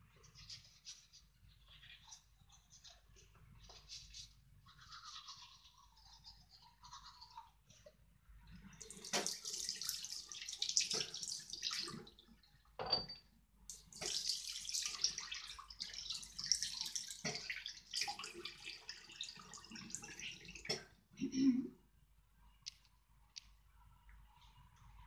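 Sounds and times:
tap water splashing into sink: 8.8 - 12.2, 13.7 - 21.0.

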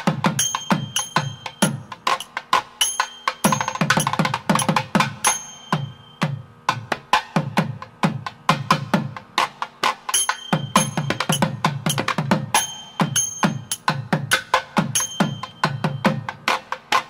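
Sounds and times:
rapid drumming: 0.0 - 17.0
high held tone: 10.2 - 13.9.

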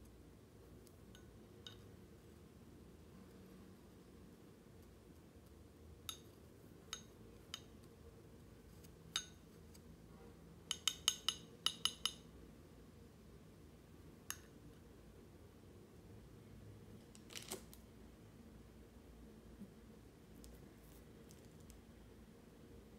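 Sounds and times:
chopsticks tapping a porcelain cup: 1.1 - 1.9, 6.1 - 6.3, 6.9 - 7.7, 9.1 - 9.4, 10.7 - 12.2.

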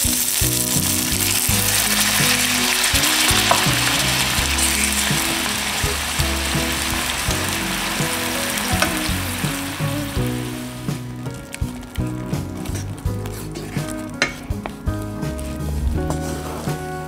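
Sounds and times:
liquid sizzling in a skillet: 0.0 - 11.0
background music with low notes: 0.0 - 17.0.

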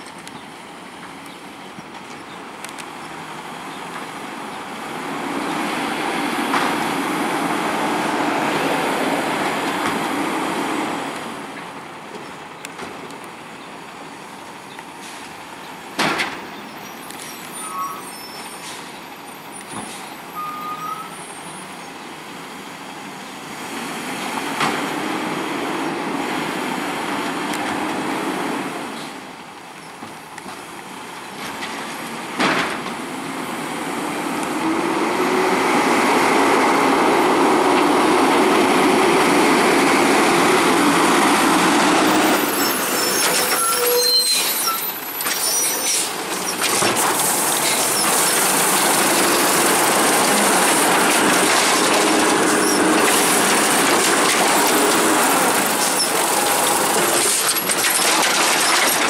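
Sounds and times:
garbage truck engine revving: 46.1 - 59.0.

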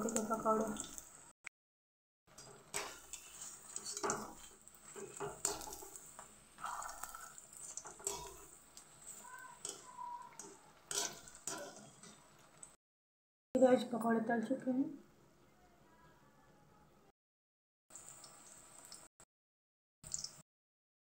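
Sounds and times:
hot oil sizzling: 0.0 - 1.4, 2.3 - 12.8, 17.9 - 19.2, 20.0 - 20.4
metal spatula scraping a pan: 2.4 - 12.3.

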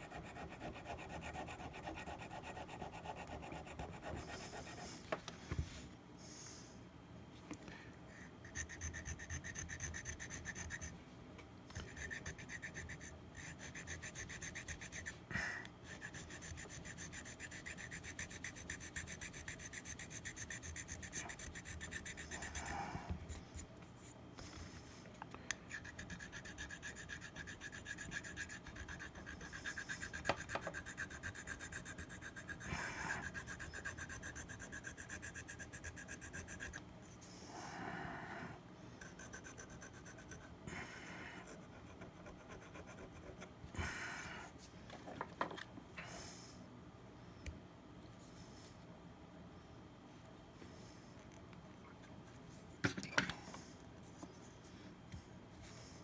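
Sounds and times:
file scraping mouthpiece: 0.0 - 4.8, 8.4 - 10.9, 11.8 - 15.2, 15.9 - 22.8, 25.7 - 36.8.

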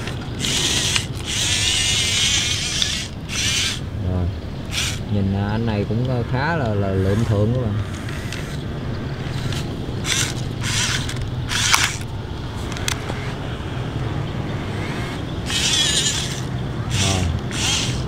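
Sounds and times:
toy excavator motors whirring: 0.0 - 3.9, 4.6 - 5.1, 6.9 - 8.6, 9.2 - 13.5, 14.5 - 18.0
steady low hum: 0.0 - 18.0.

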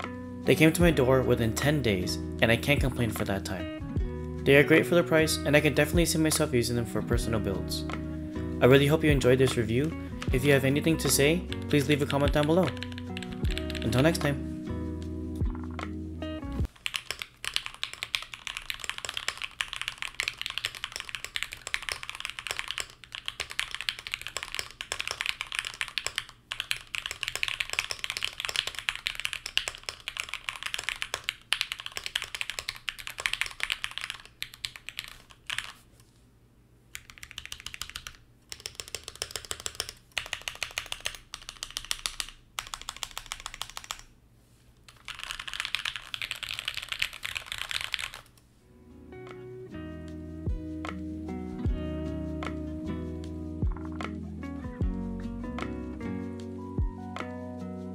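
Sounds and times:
mechanical keyboard typing: 11.5 - 14.3, 16.7 - 35.8, 37.0 - 44.1, 44.9 - 48.3.

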